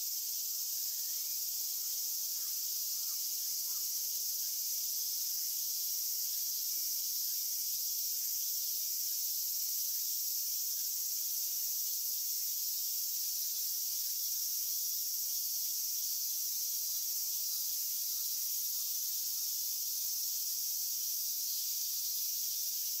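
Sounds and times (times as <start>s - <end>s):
insects chirring: 0.0s - 23.0s.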